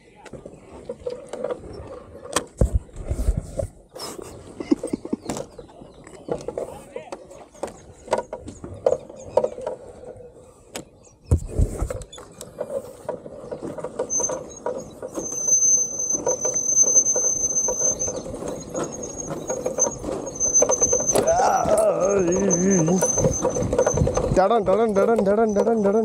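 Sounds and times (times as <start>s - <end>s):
high-pitched squeal: 14.0s - 24.4s.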